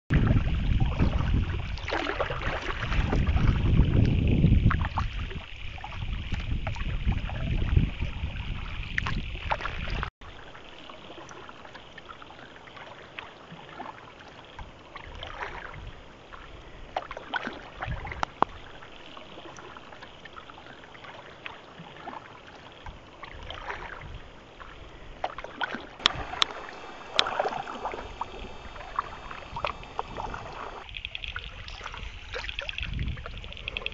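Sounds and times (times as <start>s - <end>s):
water splashing from paddle strokes: 0.1s - 33.9s
heavy low rumble: 26.0s - 33.9s.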